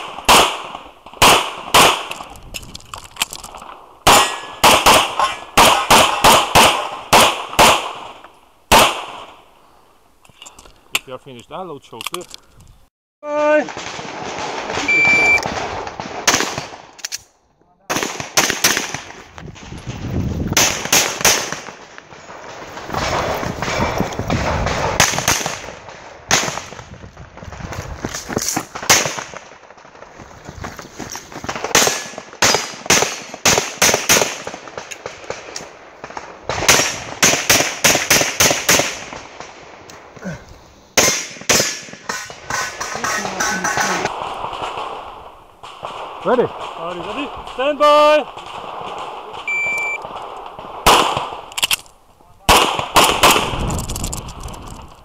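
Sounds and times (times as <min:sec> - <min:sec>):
pistol shots: 0:00.0 - 0:02.3, 0:04.0 - 0:09.4, 0:17.9 - 0:19.2, 0:20.5 - 0:26.8, 0:31.5 - 0:39.6, 0:41.0 - 0:51.8, 0:52.5 - 0:53.7
electronic timer beep: 0:14.9 - 0:15.4, 0:49.5 - 0:50.0.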